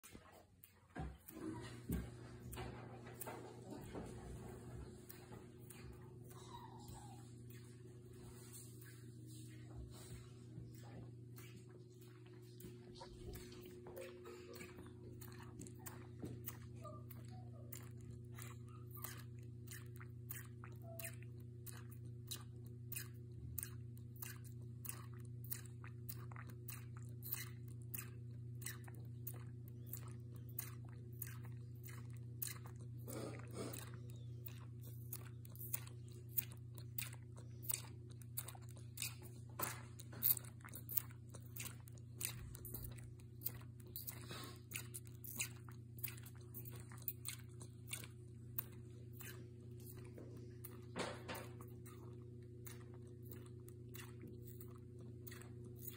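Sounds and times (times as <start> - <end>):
constant low hum: 0.0 - 55.9
wet sucking clicks: 14.1 - 55.9.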